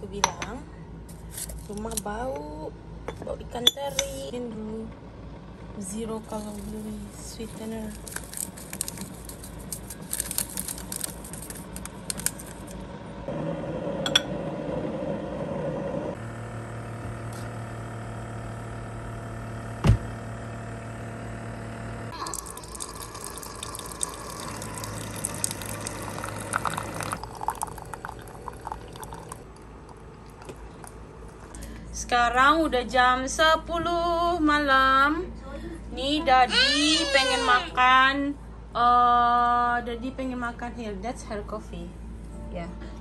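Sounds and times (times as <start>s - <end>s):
coffee maker humming: 5.5s - 31.7s
sweetener packet rustling: 6.4s - 12.8s
hot water hissing: 22.2s - 29.4s
coffee pouring into mug: 22.2s - 31.6s.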